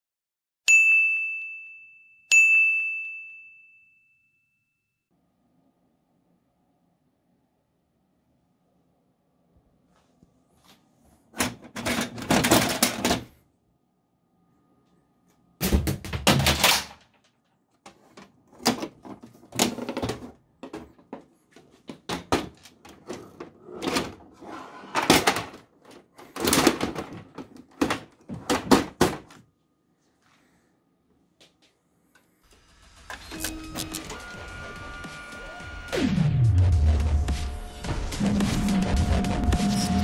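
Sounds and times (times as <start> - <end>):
plastic printer knocking and scraping: 11.4 - 13.3, 17.9 - 29.4.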